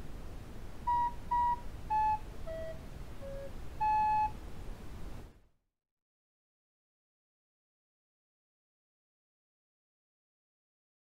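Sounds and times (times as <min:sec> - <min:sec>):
electronic beep tune: 0:00.9 - 0:04.4.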